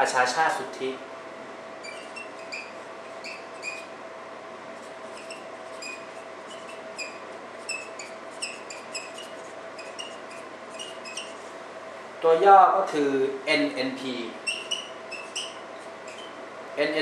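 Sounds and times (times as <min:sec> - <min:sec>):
marker squeaking on whiteboard: 0:01.8 - 0:03.9, 0:04.8 - 0:11.5, 0:14.4 - 0:16.4.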